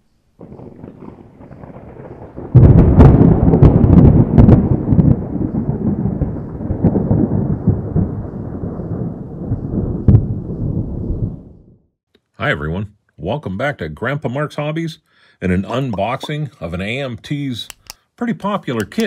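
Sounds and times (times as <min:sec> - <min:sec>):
thunder cracking and rumbling: 0:00.4 - 0:11.9.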